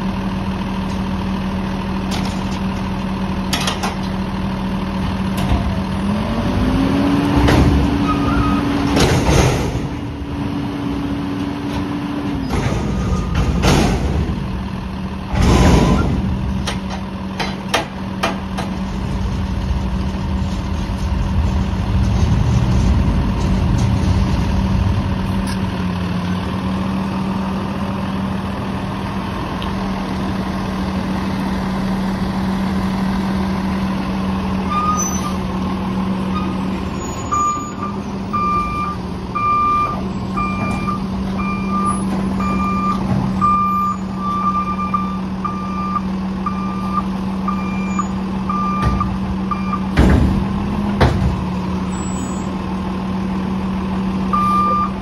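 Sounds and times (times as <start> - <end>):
diesel truck engine running: 0.0 - 55.0
heavy clunks: 11.4 - 19.0, 48.5 - 51.8
reversing alarm beeps: 37.3 - 49.9, 54.3 - 55.0.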